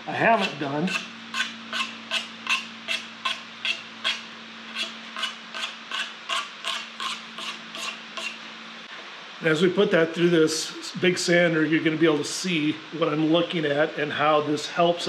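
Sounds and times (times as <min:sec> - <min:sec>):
steady low hum: 0:00.0 - 0:15.0
pencil scratching on wood: 0:00.3 - 0:04.2, 0:04.8 - 0:08.4.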